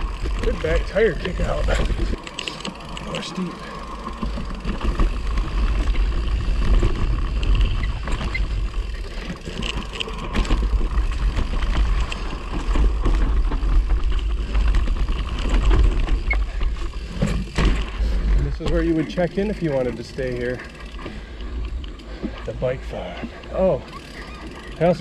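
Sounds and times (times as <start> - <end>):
bike clicking and rattling: 0.0 - 25.0
tyres rolling on dirt: 0.0 - 25.0.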